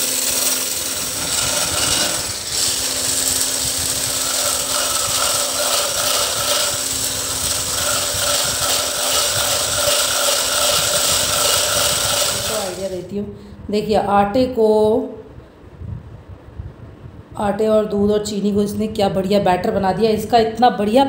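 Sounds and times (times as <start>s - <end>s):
hand blender whisking batter: 0.0s - 13.1s.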